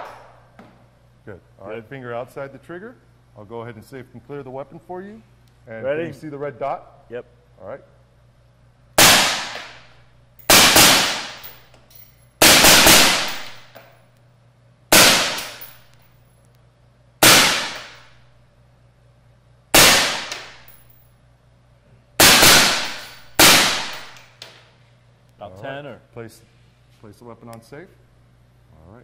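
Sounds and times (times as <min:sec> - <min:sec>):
rifle shots echoing indoors: 0:00.0 - 0:00.5, 0:09.0 - 0:11.7, 0:12.4 - 0:13.9, 0:14.9 - 0:16.2, 0:17.2 - 0:18.3, 0:19.7 - 0:21.0, 0:22.2 - 0:24.4.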